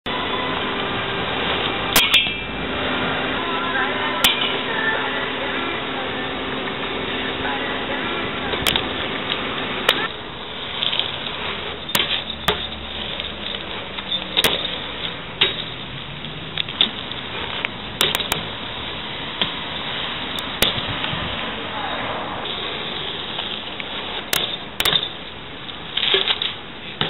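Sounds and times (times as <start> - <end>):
bike tyres rolling hiss: 0.1 - 27.0
bike landing knocks and clacks: 10.7 - 15.9, 16.6 - 18.5, 23.4 - 27.0.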